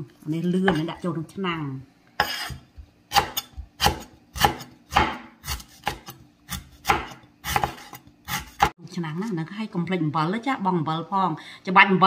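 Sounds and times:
cleaver chopping on wooden board: 0:02.2 - 0:08.7.

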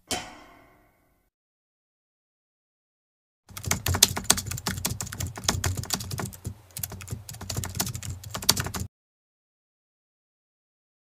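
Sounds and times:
keyboard typing clicks: 0:03.5 - 0:08.9.

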